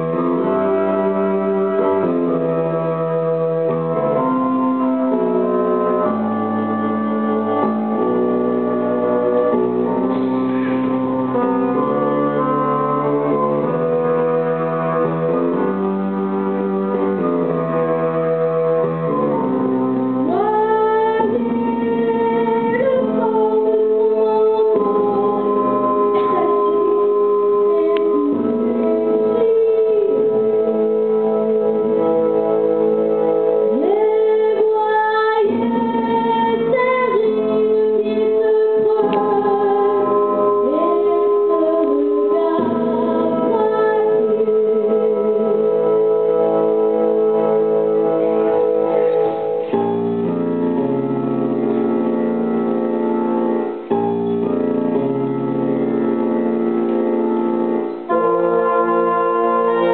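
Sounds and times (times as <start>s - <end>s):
electronic organ-like keyboard chords: 0.0s - 59.9s
person singing: 20.2s - 32.0s, 33.7s - 46.0s, 58.0s - 59.9s.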